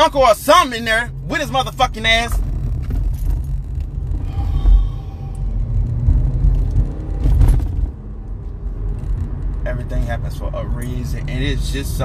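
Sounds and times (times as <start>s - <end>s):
car rumble heard from inside: 0.0s - 12.0s.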